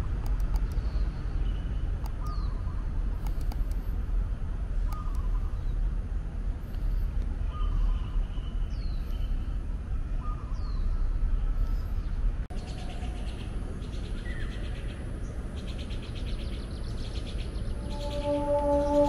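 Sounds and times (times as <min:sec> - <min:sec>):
low steady rumble: 0:00.0 - 0:19.0
birds calling: 0:00.5 - 0:03.6, 0:04.8 - 0:05.8, 0:12.0 - 0:19.0
high pulsing chirring: 0:17.4 - 0:19.0
downward-sliding whistles: 0:17.7 - 0:19.0.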